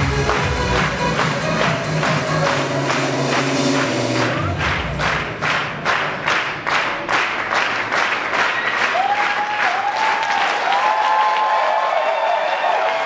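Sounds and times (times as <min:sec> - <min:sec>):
music: 0:00.0 - 0:08.9
audience clapping in unison: 0:00.0 - 0:13.0.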